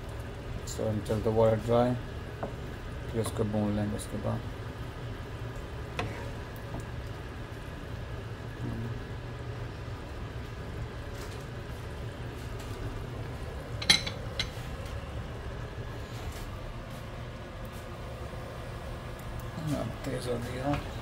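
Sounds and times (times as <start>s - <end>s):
curry simmering in pan: 0.0s - 13.8s.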